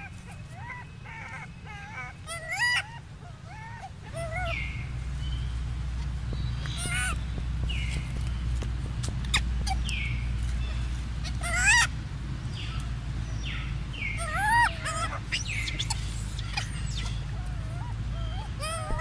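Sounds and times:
young macaque squealing: 0.0s - 4.9s, 6.6s - 7.2s, 9.1s - 11.9s, 14.1s - 19.0s.

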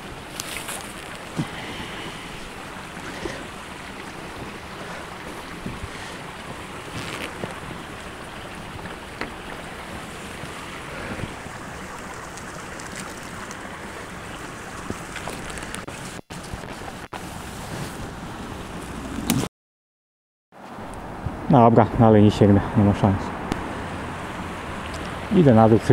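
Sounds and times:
leafy branches rustling: 0.0s - 19.5s
wind noise on microphone: 9.9s - 11.7s.

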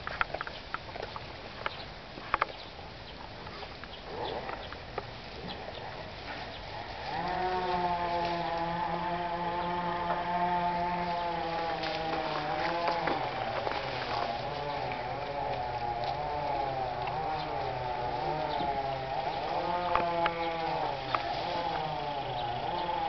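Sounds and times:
engine droning: 4.0s - 23.0s
snaps and rustles of canes: 10.8s - 22.1s.

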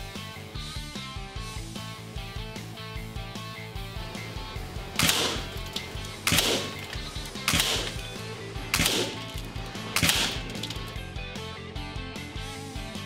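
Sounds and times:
rock music: 0.0s - 13.0s
air rifle shots: 4.9s - 11.0s.

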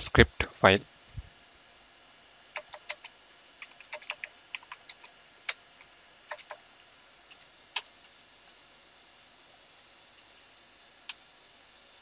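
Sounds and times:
computer keyboard typing: 2.6s - 5.6s, 6.3s - 6.6s.

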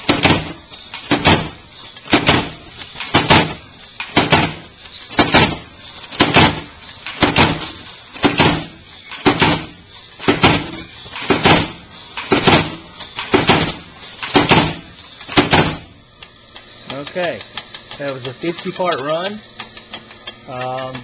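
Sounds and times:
machine cutter double clack: 0.0s - 15.9s.

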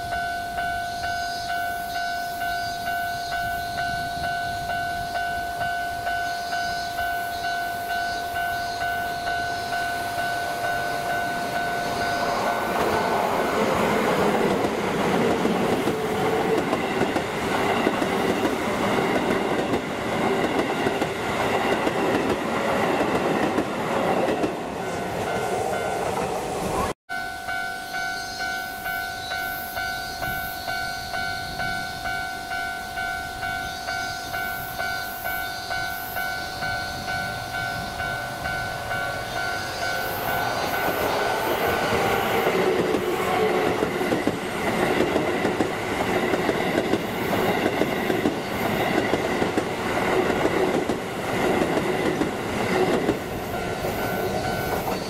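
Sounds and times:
level crossing bell ringing: 0.0s - 12.9s, 27.1s - 42.9s
train falling whine: 0.0s - 26.9s, 29.3s - 55.0s
electric train passing: 0.0s - 55.0s.

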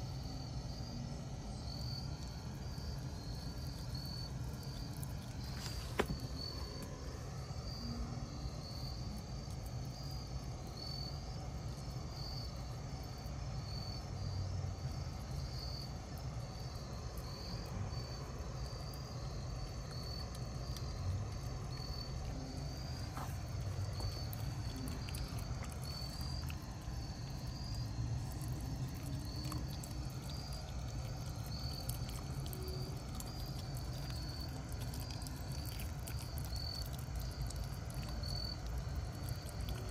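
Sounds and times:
crickets chirping: 0.0s - 39.9s
low outdoor rumble: 0.0s - 39.9s
puppy chewing clicks: 23.4s - 27.5s, 28.1s - 39.9s.

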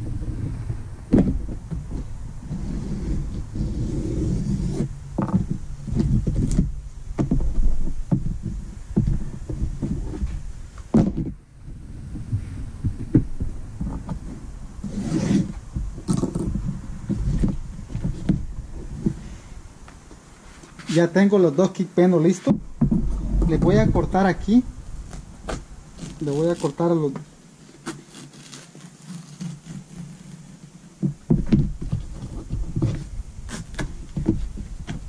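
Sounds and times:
low rumble: 0.0s - 19.9s, 22.6s - 26.3s.

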